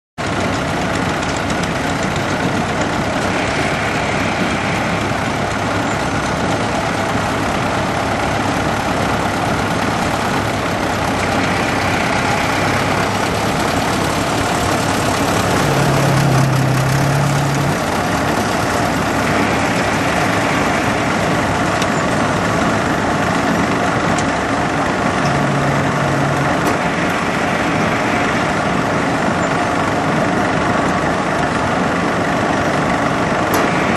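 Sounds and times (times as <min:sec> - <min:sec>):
bulldozer diesel engine running: 0:00.2 - 0:33.9.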